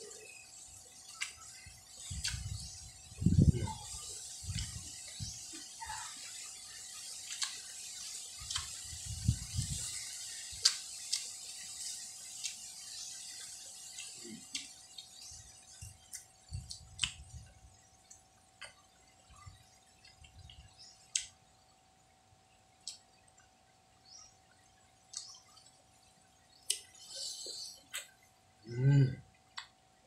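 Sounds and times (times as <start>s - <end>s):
wet mouth clicks and lip smacks: 2.2s - 2.6s, 7.3s - 8.8s, 10.6s - 11.3s, 16.1s - 17.3s, 20.0s - 21.4s, 22.8s - 23.0s, 25.1s - 25.6s.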